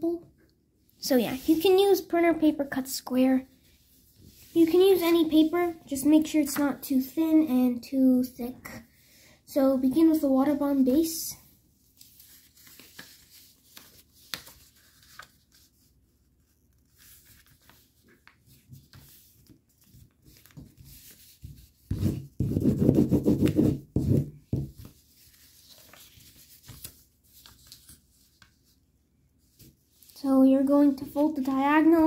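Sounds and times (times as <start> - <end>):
paper rustling while folded: 11.8 - 32.0.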